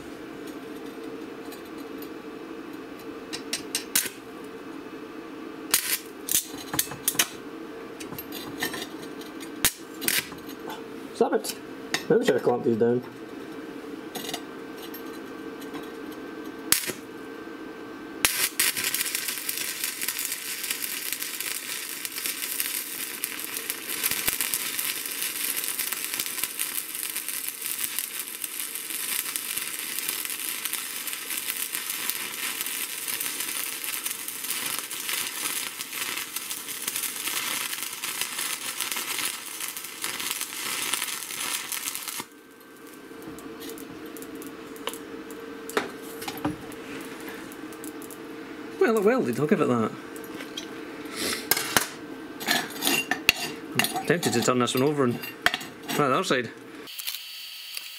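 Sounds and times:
welding arc strike click: 0:03.3 - 0:04.2, 0:05.7 - 0:07.4, 0:16.7 - 0:17.0, 0:18.2 - 0:42.3
welding arc crackling: 0:03.3 - 0:04.3, 0:05.7 - 0:11.6, 0:16.7 - 0:17.2, 0:18.2 - 0:49.9, 0:53.7 - 0:57.9.

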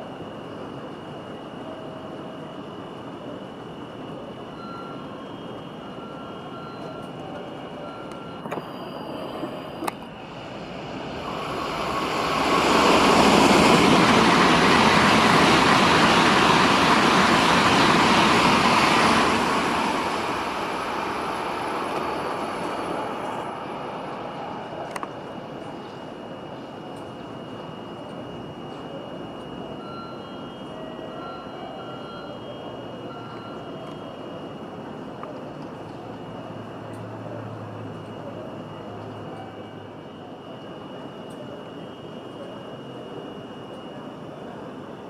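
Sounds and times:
high-speed train passing: 0:00.0 - 0:45.0.

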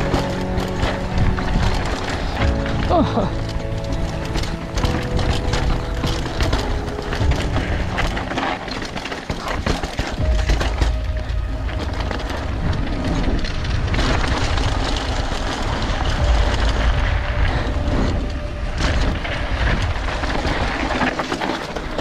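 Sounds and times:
mountain bike rattling: 0:00.0 - 0:22.0
wind buffeting microphone: 0:10.1 - 0:21.2.

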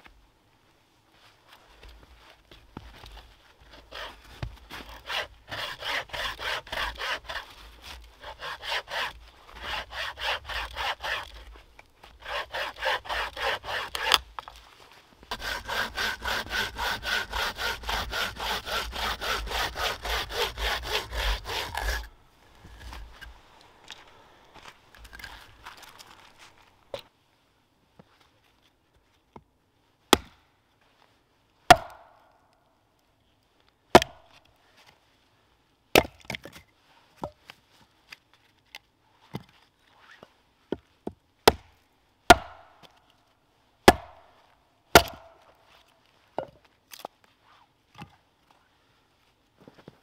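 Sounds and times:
hatchet chopping logs: 0:03.7 - 0:11.5, 0:12.2 - 0:14.5, 0:15.3 - 0:26.2, 0:30.1 - 0:30.4, 0:31.7 - 0:32.2, 0:33.9 - 0:34.4, 0:35.9 - 0:36.6, 0:40.7 - 0:43.0, 0:43.8 - 0:44.3, 0:44.9 - 0:45.4.

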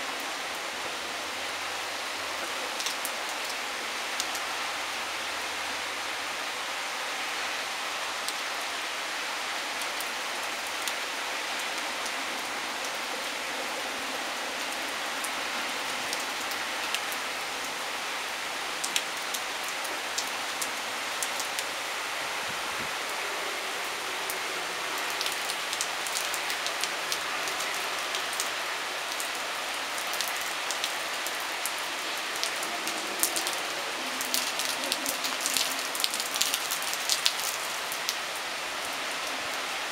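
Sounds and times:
torrential rain hissing: 0:00.0 - 0:39.9.

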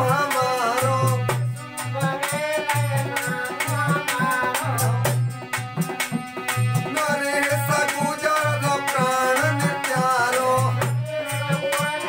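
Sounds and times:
dholak drumming: 0:00.0 - 0:12.0
harmonium melody: 0:00.0 - 0:12.0.

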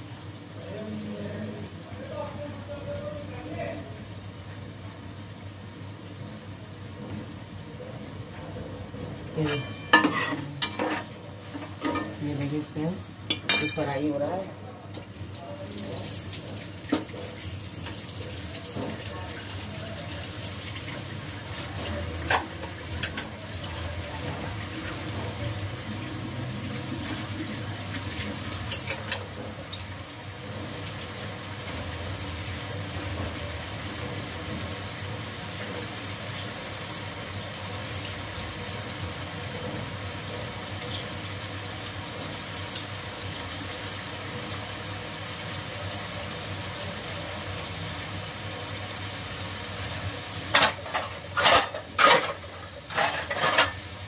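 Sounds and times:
food frying in a pot: 0:00.0 - 0:54.0
dishes clinking: 0:09.4 - 0:12.2, 0:13.3 - 0:13.9, 0:28.7 - 0:29.3, 0:50.5 - 0:53.8.

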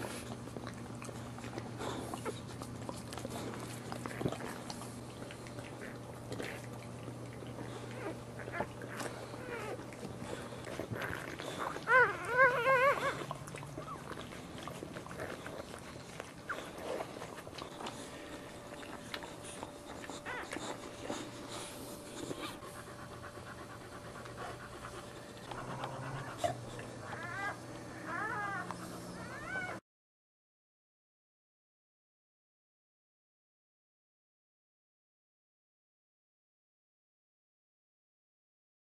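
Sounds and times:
dog panting: 0:00.0 - 0:29.8
puppies squealing: 0:07.9 - 0:23.7, 0:25.5 - 0:29.8.

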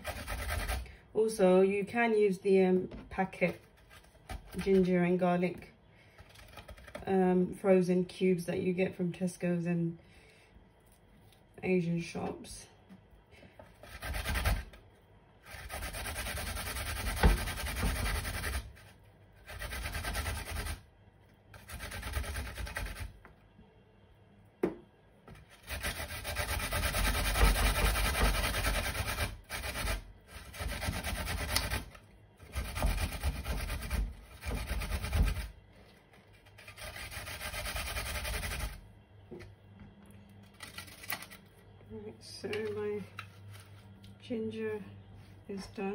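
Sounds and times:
ginger grated on metal grater: 0:00.0 - 0:00.9, 0:13.8 - 0:14.8, 0:15.4 - 0:20.8, 0:21.5 - 0:23.2, 0:25.4 - 0:35.6, 0:36.3 - 0:38.8.

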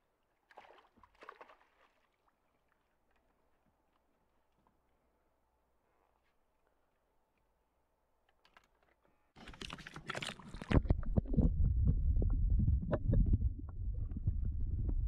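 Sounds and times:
water splashing and sloshing: 0:00.3 - 0:03.6, 0:09.4 - 0:12.0
muffled underwater rumble: 0:10.6 - 0:15.0.

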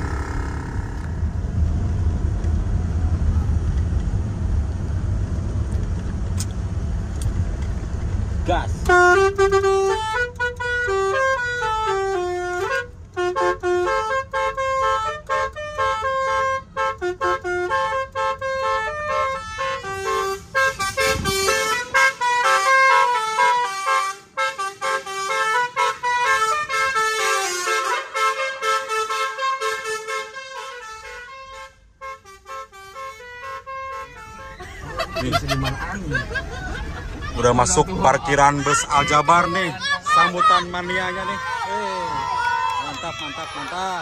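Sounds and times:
air horn playing fast melody: 0:00.0 - 0:01.2, 0:08.8 - 0:35.0
low engine rumble: 0:00.0 - 0:44.0.

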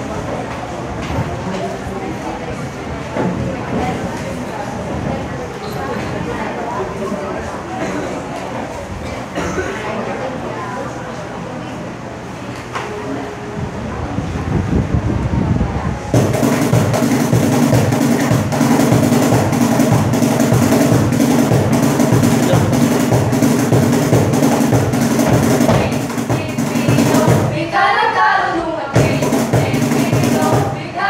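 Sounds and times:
box drum quick beat: 0:16.2 - 0:27.9, 0:29.0 - 0:31.0.

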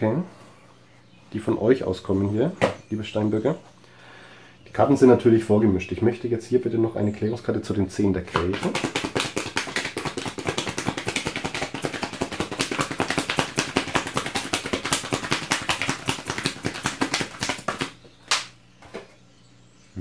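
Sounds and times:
cards being shuffled: 0:08.3 - 0:18.5.

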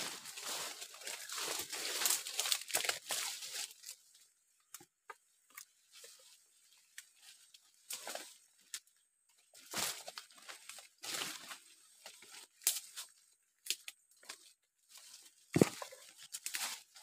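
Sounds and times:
footsteps crunching through dry leaves: 0:00.0 - 0:04.1, 0:14.9 - 0:17.0.

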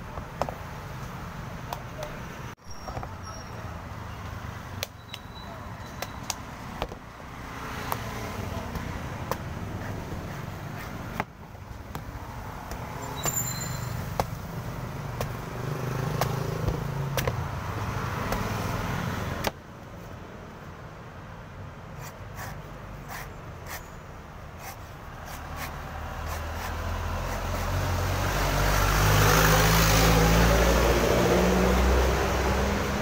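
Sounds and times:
road traffic noise: 0:00.0 - 0:33.0
cleaver chopping coconut: 0:07.8 - 0:11.3, 0:14.1 - 0:17.5, 0:18.2 - 0:18.6, 0:24.6 - 0:27.9.

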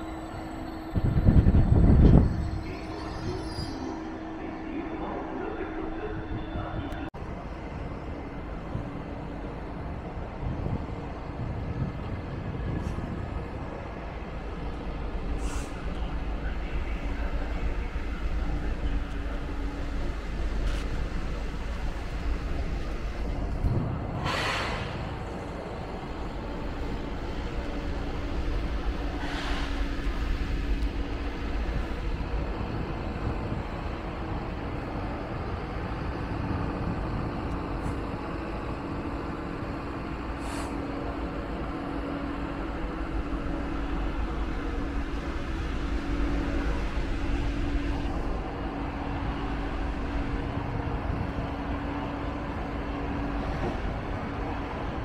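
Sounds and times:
train rumble and hum: 0:00.0 - 0:55.0
air brake hiss: 0:15.4 - 0:15.8, 0:24.2 - 0:25.0, 0:29.2 - 0:29.8, 0:40.4 - 0:40.8.

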